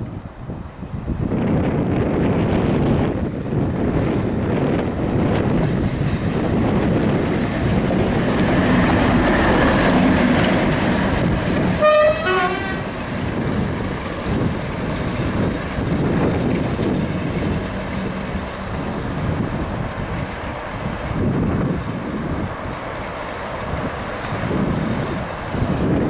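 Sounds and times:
diesel locomotive passing: 0:00.0 - 0:26.0
train wheel noise: 0:00.0 - 0:26.0
locomotive horn blast: 0:11.6 - 0:13.0.

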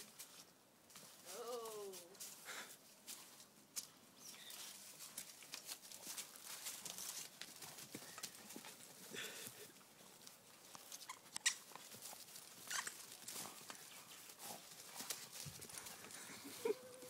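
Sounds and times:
claws and paws scuffling: 0:00.0 - 0:17.0
faint squeaks: 0:12.6 - 0:13.0.

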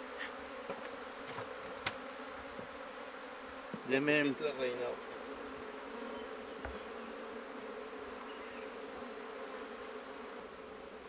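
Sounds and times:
honeybees buzzing: 0:00.0 - 0:11.0
faint knock: 0:06.6 - 0:06.8.

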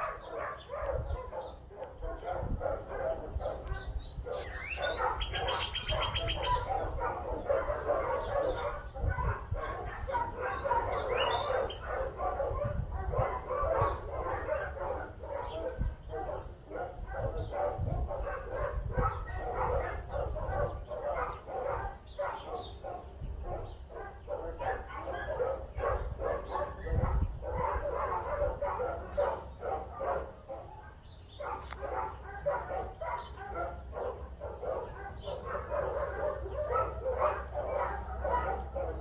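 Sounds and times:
many dogs barking and yipping: 0:00.0 - 0:39.0
bird chirps: 0:03.4 - 0:06.7, 0:10.5 - 0:11.8.

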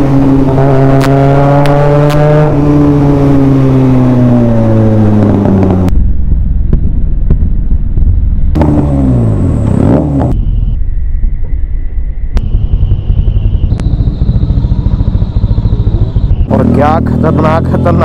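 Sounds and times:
motorcycle engine revving: 0:00.0 - 0:06.0, 0:08.5 - 0:10.8, 0:12.4 - 0:18.0.

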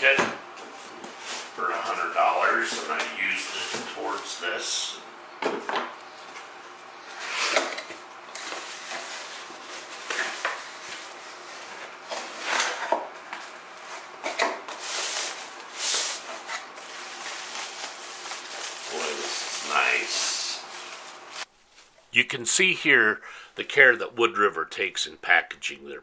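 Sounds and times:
cardboard packaging scraping: 0:07.0 - 0:21.9.

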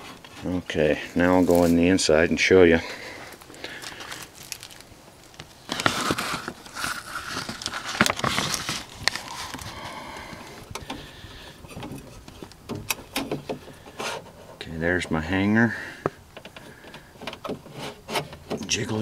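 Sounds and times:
rustling and crackling: 0:00.0 - 0:19.0
dry leaves crackling underfoot: 0:01.2 - 0:02.0, 0:03.0 - 0:09.8
sharp clicks and knocks: 0:11.7 - 0:14.3, 0:16.0 - 0:18.8.

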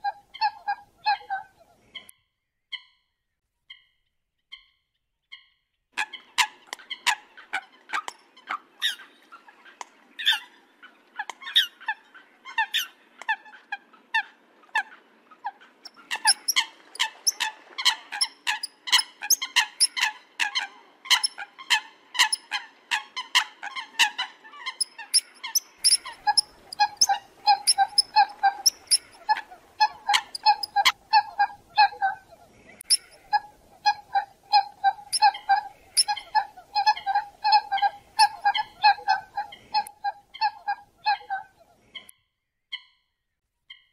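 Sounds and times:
coots calling: 0:00.0 - 0:02.1, 0:05.3 - 0:42.1.

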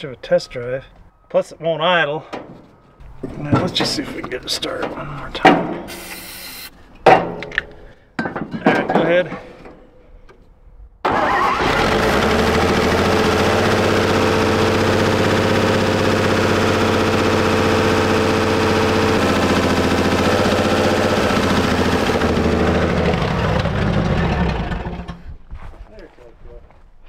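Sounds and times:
old truck engine running: 0:11.1 - 0:25.2.

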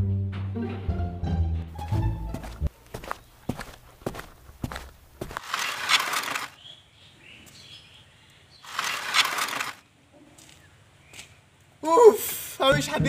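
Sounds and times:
footsteps on concrete: 0:01.8 - 0:06.5.

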